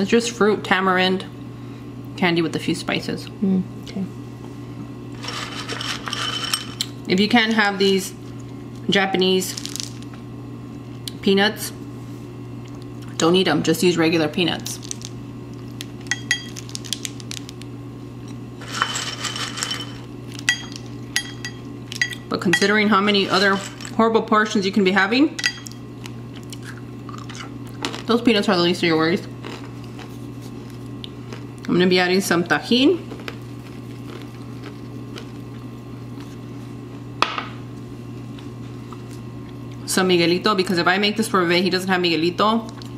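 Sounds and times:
steady low hum: 0.0s - 42.9s
nuts rustling clatter: 5.2s - 6.8s, 9.4s - 10.1s, 18.6s - 20.4s, 23.1s - 24.0s.

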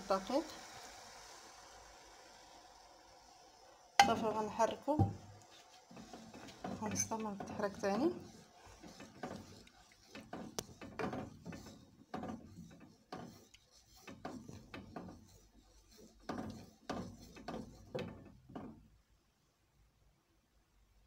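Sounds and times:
spatula scraping metal saucepan: 4.0s - 18.7s.

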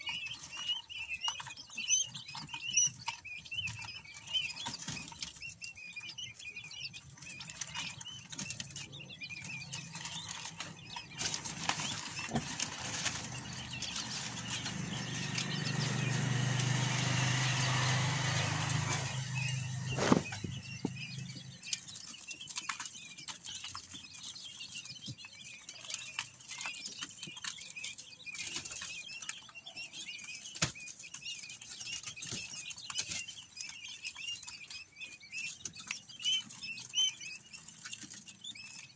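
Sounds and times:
chicks peeping: 0.0s - 38.9s
chicks scratching and pecking: 0.0s - 38.9s
wing flutters: 18.7s - 20.6s.

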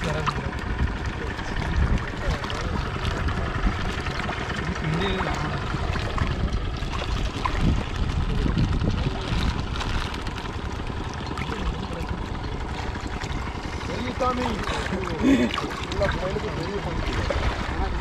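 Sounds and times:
fish splashing at surface: 0.0s - 18.0s
low rumble: 0.0s - 18.0s
water rushing: 0.0s - 18.0s
pellets pattering onto water: 2.1s - 13.8s.

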